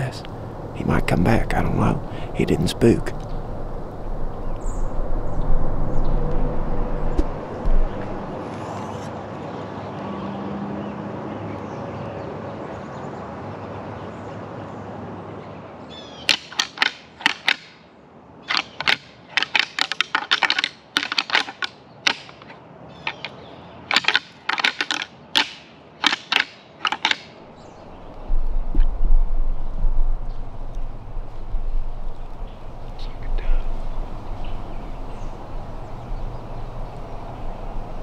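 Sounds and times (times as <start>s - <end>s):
steady rustling hiss: 0.0s - 9.3s, 15.9s - 38.0s
sharp dry clicks and crackles: 16.3s - 17.7s, 18.5s - 23.3s, 23.9s - 27.3s.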